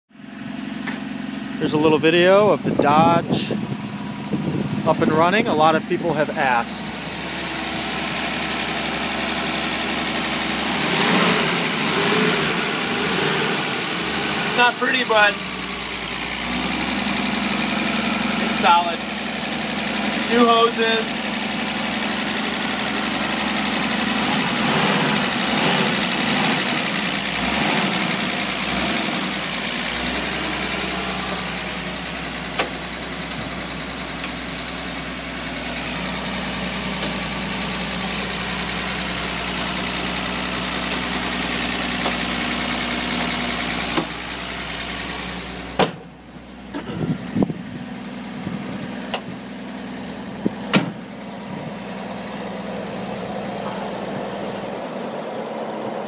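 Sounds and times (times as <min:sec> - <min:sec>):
van engine idling: 0:00.1 - 0:56.0.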